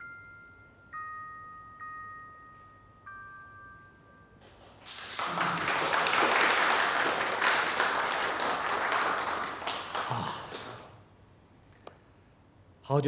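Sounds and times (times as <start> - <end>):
people clapping: 4.4 - 11.0.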